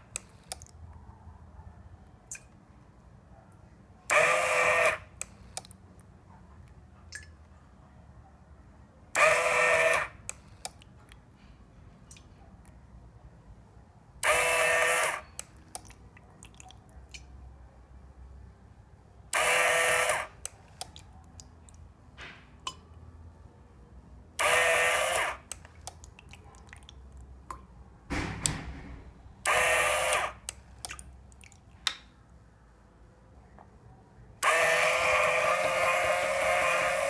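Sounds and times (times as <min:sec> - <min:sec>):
small water pump running: 0:04.1 - 0:05.4, 0:09.2 - 0:10.4, 0:14.2 - 0:15.9, 0:19.3 - 0:21.0, 0:24.4 - 0:25.6, 0:29.4 - 0:31.0, 0:34.4 - 0:37.0.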